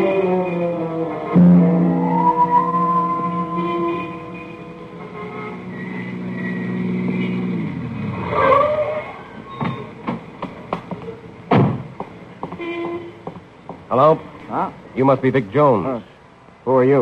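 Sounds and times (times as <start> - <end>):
brake squeal: 0.0 - 10.1, 12.4 - 13.4
car door slam: 11.5 - 11.9.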